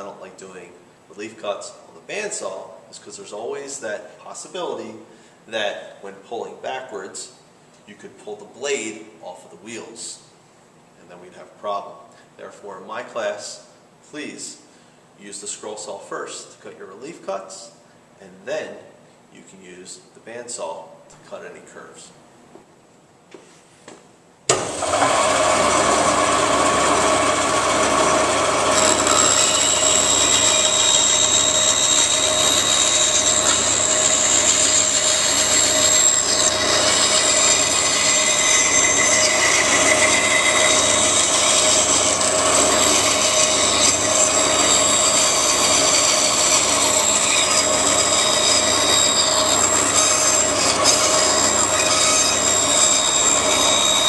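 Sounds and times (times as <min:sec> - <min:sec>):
band saw cutting wood: 0:24.5 - 0:54.0.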